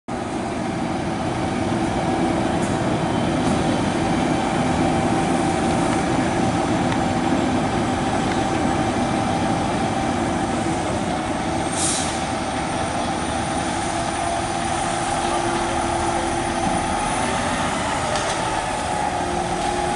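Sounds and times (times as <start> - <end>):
diesel engine idling: 0.1 - 19.9
air hiss: 11.7 - 12.3.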